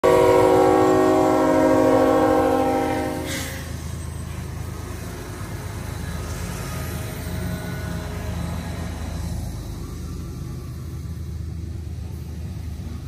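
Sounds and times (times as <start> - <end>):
locomotive air horn chord: 0.0 - 3.7
diesel engines rumbling: 0.0 - 13.0.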